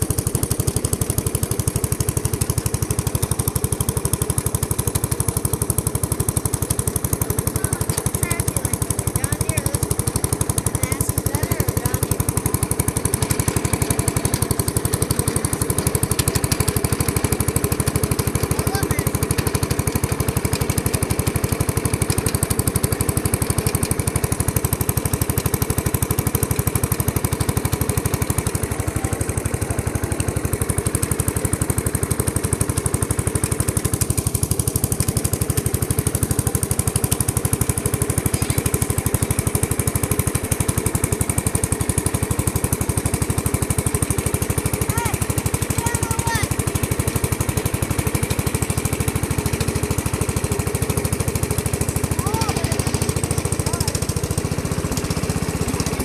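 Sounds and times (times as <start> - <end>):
lawn tractor engine running: 0.0 - 56.0.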